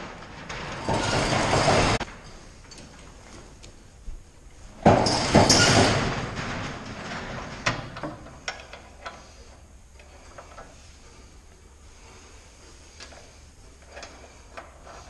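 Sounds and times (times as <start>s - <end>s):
heavy steel chain rattling: 0.0s - 2.8s
chain clanking: 0.0s - 3.1s, 4.8s - 9.3s.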